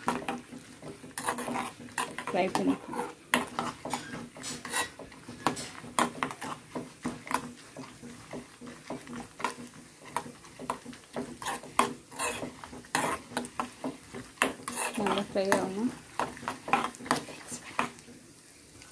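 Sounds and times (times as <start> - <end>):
metal spoon scraping a pan: 0.0 - 18.1.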